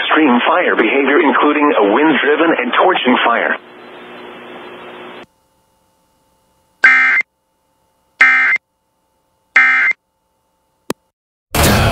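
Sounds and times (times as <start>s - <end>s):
screeching digital data tones: 6.8s - 7.2s, 8.2s - 8.6s, 9.6s - 10.0s.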